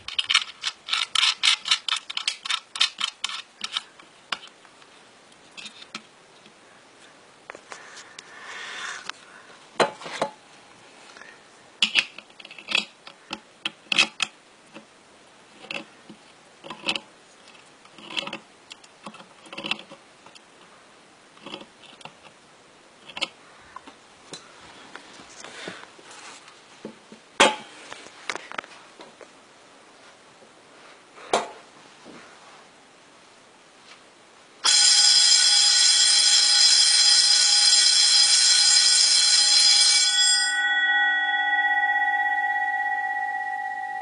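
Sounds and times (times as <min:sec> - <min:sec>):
handling clicks and knocks: 0:00.0 - 0:04.6.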